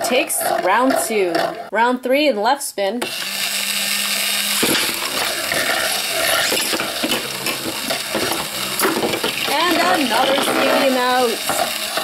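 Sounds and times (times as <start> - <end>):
tops scraping on plastic: 0.0 - 1.7, 4.5 - 12.0.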